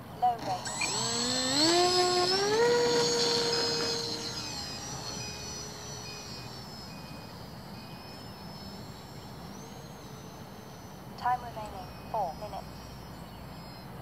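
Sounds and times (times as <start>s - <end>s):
model plane motor whining: 0.0s - 14.0s
faint beeps: 3.2s - 14.0s.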